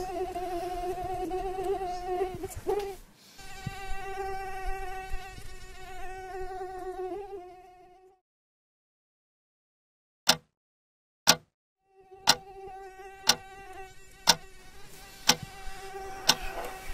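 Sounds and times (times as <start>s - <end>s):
mosquito whine: 0.0s - 8.2s, 11.8s - 16.9s.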